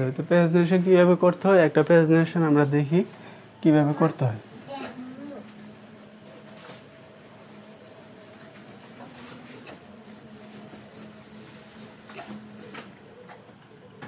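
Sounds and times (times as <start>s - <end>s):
steady low hum: 0.0s - 14.0s
pen scratching while writing: 7.7s - 13.0s.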